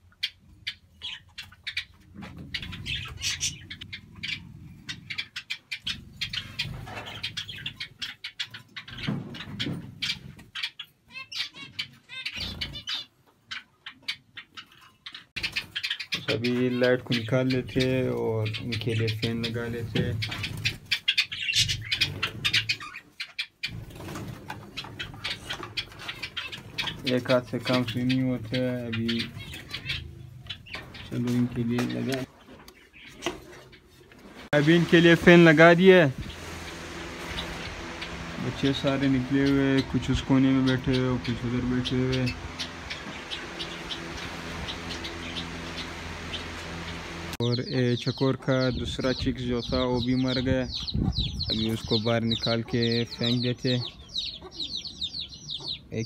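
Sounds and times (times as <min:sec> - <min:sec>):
finches chirping: 0:00.0 - 0:33.9, 0:34.6 - 0:56.0
doves cooing: 0:00.0 - 0:47.4
low rumble: 0:34.6 - 0:47.4.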